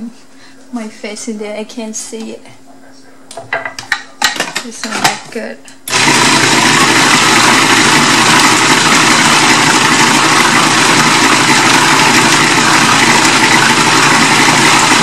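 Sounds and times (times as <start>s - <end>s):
food processor motor grinding fish: 5.9s - 15.0s.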